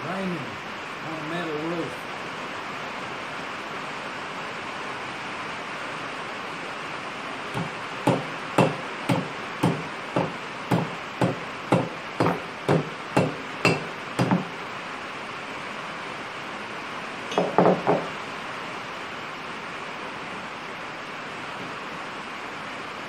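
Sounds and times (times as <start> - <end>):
hammer tapping on metal: 7.6 - 14.5, 17.3 - 18.1.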